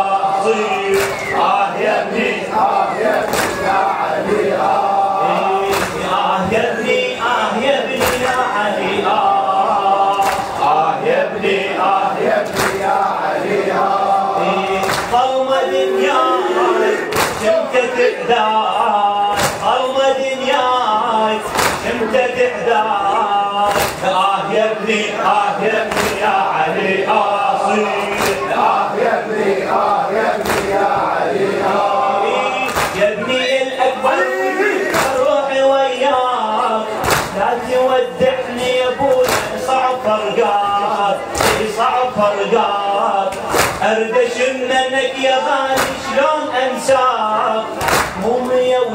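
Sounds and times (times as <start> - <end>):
man chanting into a microphone: 0.0 - 13.3, 14.0 - 29.3, 30.0 - 48.9
sharp slaps: 0.9 - 1.4, 3.1 - 3.8, 5.7 - 6.2, 8.0 - 8.4, 10.1 - 10.6, 12.4 - 13.0, 14.8 - 15.2, 17.1 - 17.6, 19.3 - 19.8, 21.5 - 22.0, 23.6 - 24.1, 25.8 - 26.3, 28.1 - 28.5, 30.4 - 30.8, 32.7 - 33.0, 34.9 - 35.2, 37.0 - 37.4, 39.1 - 39.7, 41.3 - 41.8, 43.3 - 43.9, 45.7 - 46.1, 47.8 - 48.2.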